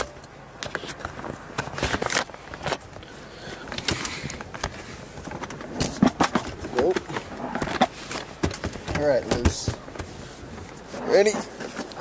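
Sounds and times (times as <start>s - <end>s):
handling noise clicks and knocks: 3.6s - 12.0s.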